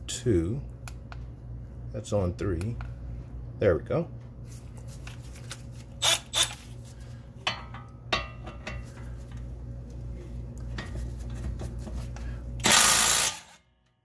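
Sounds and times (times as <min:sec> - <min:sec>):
cordless power tool burst: 0:12.6 - 0:13.6.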